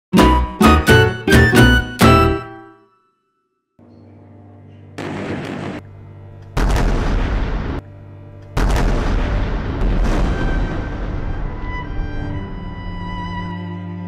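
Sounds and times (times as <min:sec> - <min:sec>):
explosions with loud rumble: 0:05.0 - 0:05.8, 0:06.6 - 0:07.8, 0:08.6 - 0:11.7.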